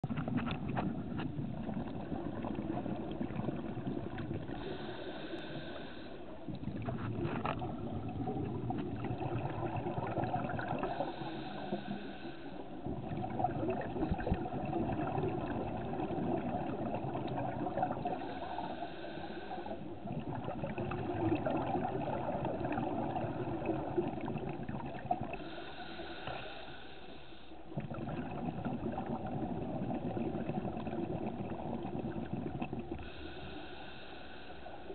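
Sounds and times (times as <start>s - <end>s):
bubbling exhales underwater: 0.0s - 4.9s, 6.5s - 11.3s, 12.8s - 18.5s, 19.7s - 25.4s, 27.7s - 33.4s
regulator inhale whistling: 4.5s - 6.4s, 10.8s - 12.7s, 18.2s - 19.9s, 25.4s - 27.6s, 33.0s - 34.9s.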